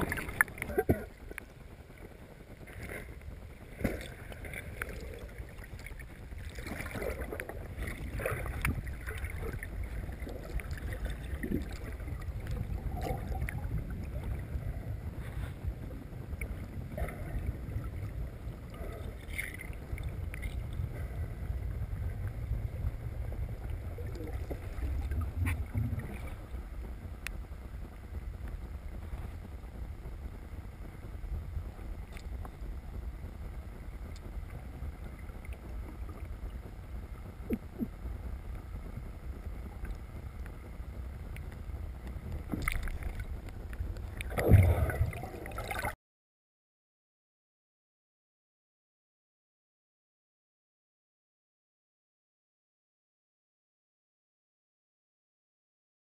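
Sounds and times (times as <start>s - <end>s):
bubbling water: 0.0s - 28.1s, 41.0s - 46.0s
underwater rumble of moving water: 0.0s - 46.0s.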